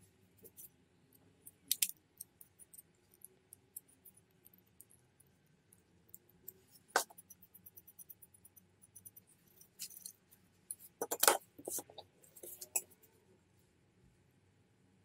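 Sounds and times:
small steel parts clinking: 9.6 - 12.9.

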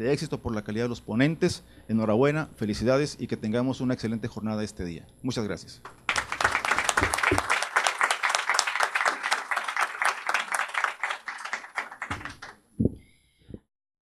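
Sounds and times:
audience applauding: 5.9 - 12.6.

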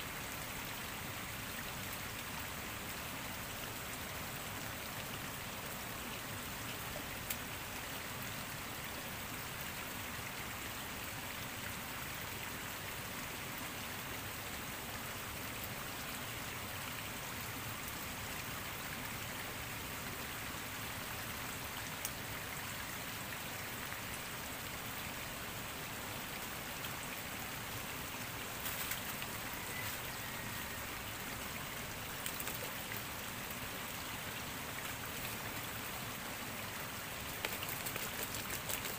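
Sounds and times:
stream water rushing: 0.0 - 38.9
faint clicks: 32.2 - 33.0, 37.3 - 38.9.

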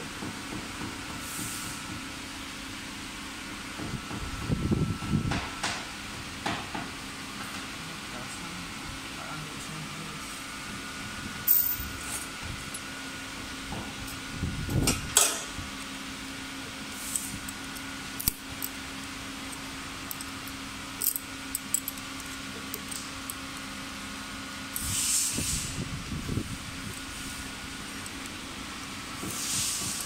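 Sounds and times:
steady machine hum: 1.8 - 30.0
steel parts clinking: 11.5 - 12.0, 17.1 - 23.7
brief hiss: 24.8 - 25.8.

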